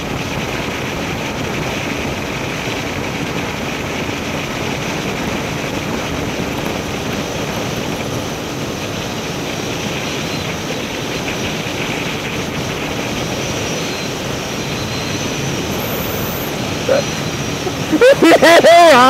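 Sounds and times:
wind rushing over microphone: 0.0s - 19.0s
motorcycle engine droning: 10.0s - 18.6s.

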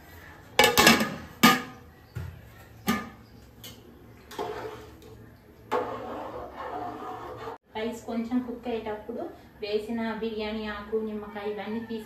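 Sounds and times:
steel utensils striking steel pots: 0.6s - 1.8s
ladle scraping and tapping pot: 2.9s - 7.6s.

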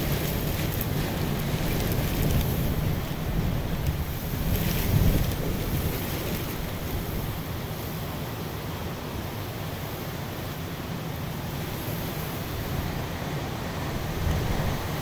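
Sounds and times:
wind buffeting microphone: 0.0s - 7.8s, 12.4s - 15.0s
driving rain: 0.0s - 15.0s
hurricane wind: 0.0s - 15.0s.

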